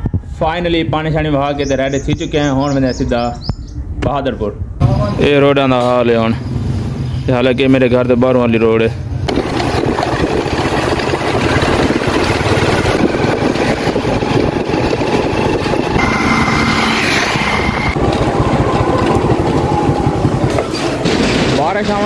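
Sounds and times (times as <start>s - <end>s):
road and wind noise: 0.0s - 22.0s
small motorcycle engine running: 9.3s - 21.2s
thin high tone: 16.0s - 18.0s.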